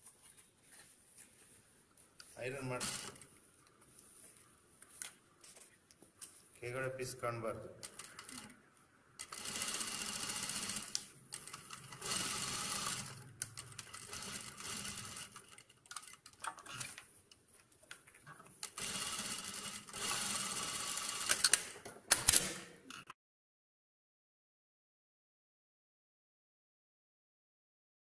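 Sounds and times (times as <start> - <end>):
sewing machine stitching: 2.8 - 3.2, 9.2 - 17.0, 18.7 - 21.7.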